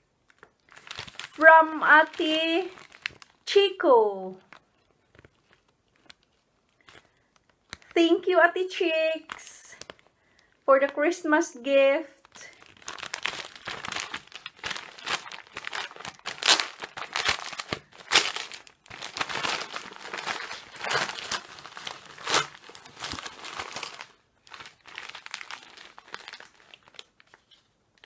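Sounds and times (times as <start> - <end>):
wrapping paper rustling: 0.3 - 3.5, 4.4 - 8.2, 12.1 - 28.0
wrapping paper ripping: 0.4 - 3.5, 12.3 - 28.0.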